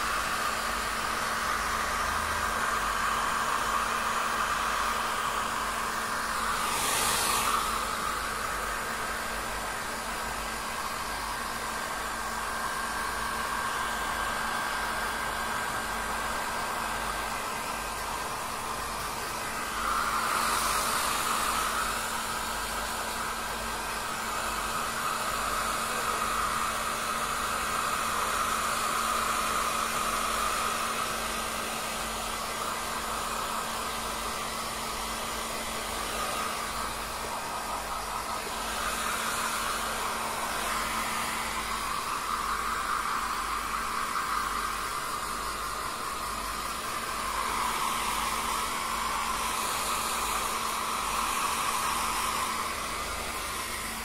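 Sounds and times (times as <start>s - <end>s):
hair dryer blowing: 0.0s - 54.0s.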